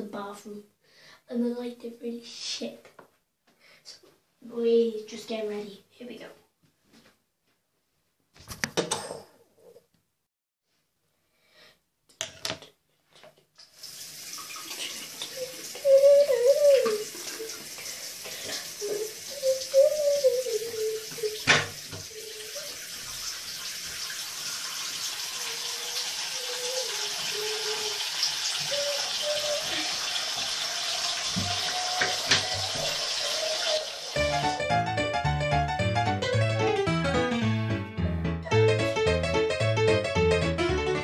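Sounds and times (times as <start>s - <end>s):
water running: 13.6s - 34.9s.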